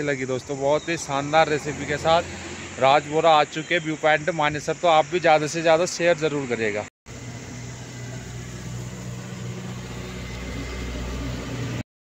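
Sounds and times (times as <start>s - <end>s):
gas burner hissing: 7.1s - 11.8s.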